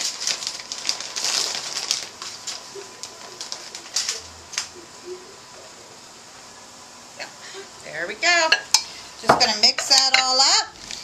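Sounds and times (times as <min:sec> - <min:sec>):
plastic bag crinkling: 0:00.0 - 0:04.8, 0:10.7 - 0:11.0.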